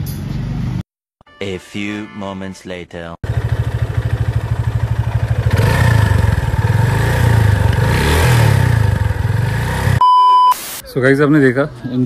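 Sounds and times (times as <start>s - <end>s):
motorcycle engine idling and revving: 3.2s - 10.0s.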